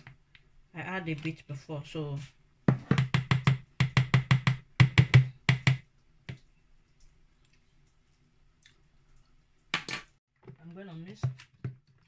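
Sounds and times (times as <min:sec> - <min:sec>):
spoon knocking plastic bowl: 0:02.7 - 0:05.8.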